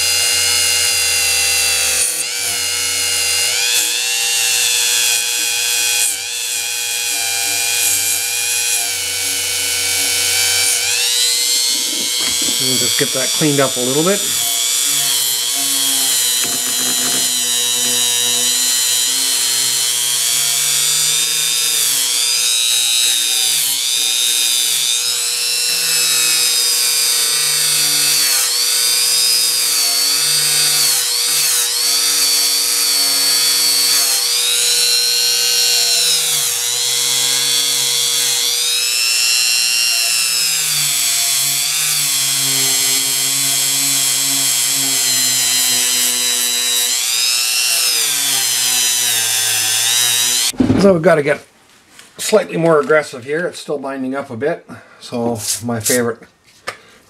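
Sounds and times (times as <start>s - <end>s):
rotary tool motor whining: 0.0s - 50.6s
nylon brush scrubbing metal: 11.0s - 19.4s.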